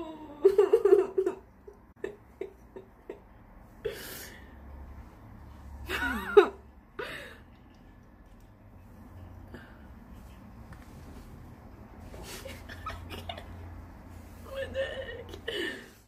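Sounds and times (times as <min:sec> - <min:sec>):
young woman giggling: 0:05.9 - 0:07.4, 0:12.2 - 0:13.8.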